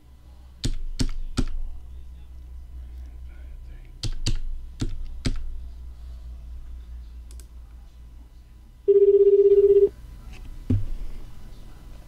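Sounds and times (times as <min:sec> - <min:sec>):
telephone ringback tone: 0:08.9 - 0:09.9.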